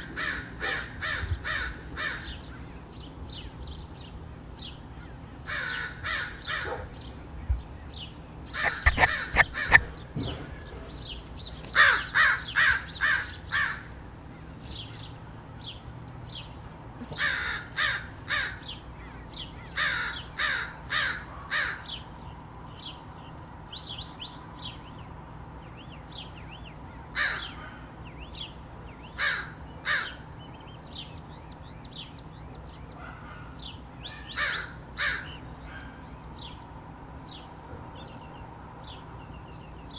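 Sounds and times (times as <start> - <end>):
crows cawing: 0.0 - 2.4, 5.0 - 6.8, 8.6 - 9.9, 11.7 - 14.0, 17.1 - 22.0, 27.1 - 27.9, 29.2 - 30.3, 34.1 - 36.0
small bird chirping: 6.4 - 10.1, 30.0 - 39.9.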